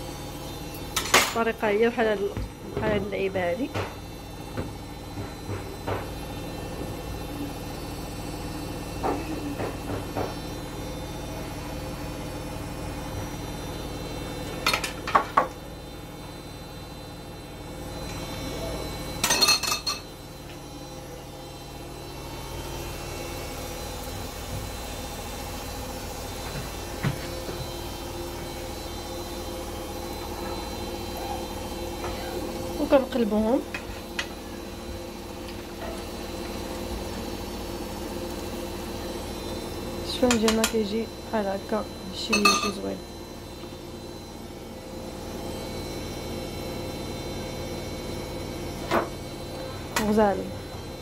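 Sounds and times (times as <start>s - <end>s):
dough frying in hot oil: 3.1s - 51.0s.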